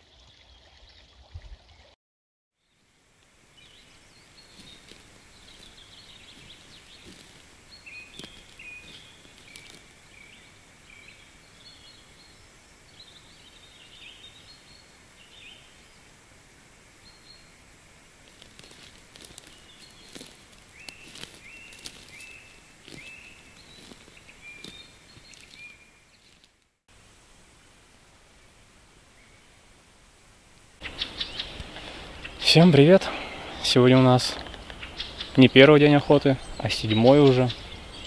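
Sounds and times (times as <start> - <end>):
outdoor hiss: 2.6 - 38.0
small birds chirping: 3.5 - 16.2, 18.3 - 26.6, 30.8 - 38.0.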